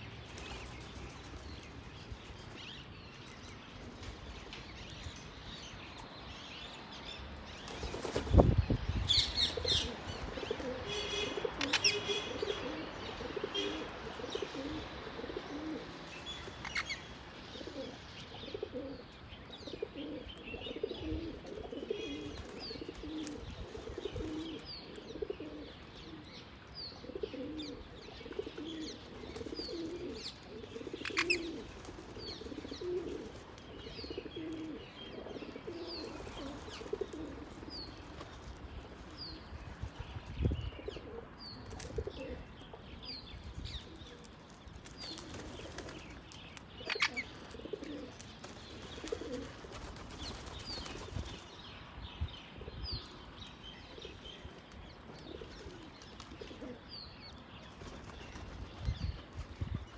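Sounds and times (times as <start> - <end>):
small birds chirping: 0.0 - 59.9
pigeons cooing: 9.1 - 39.6, 40.7 - 43.1, 46.8 - 51.4, 53.9 - 56.9.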